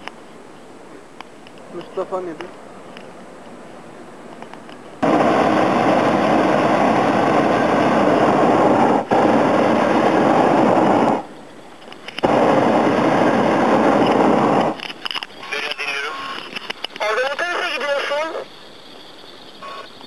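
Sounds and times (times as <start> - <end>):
propane burner blasts: 5.0 - 18.6.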